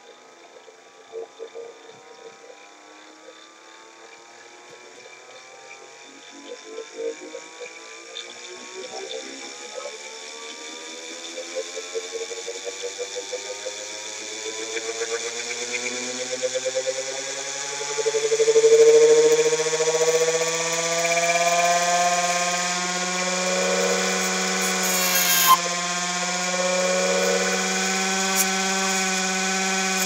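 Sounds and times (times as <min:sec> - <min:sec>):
motor generator whine rising: 0:12.0 - 0:30.0
fast pulsing throb: 0:18.0 - 0:30.0.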